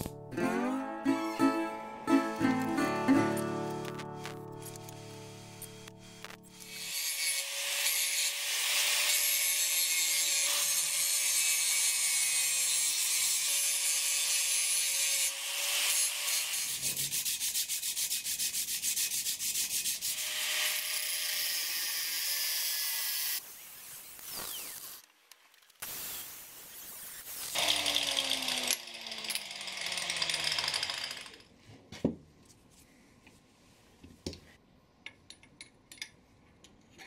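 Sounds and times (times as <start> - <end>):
angle grinder grinding metal: 3.9 - 17.1, 20.0 - 25.1, 25.9 - 31.4.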